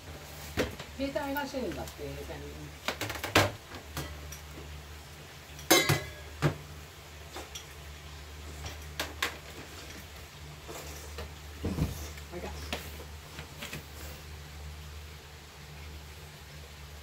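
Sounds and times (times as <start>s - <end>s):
kitchen things clicking and tapping: 2.8s - 4.7s, 5.5s - 6.6s, 8.5s - 10.1s.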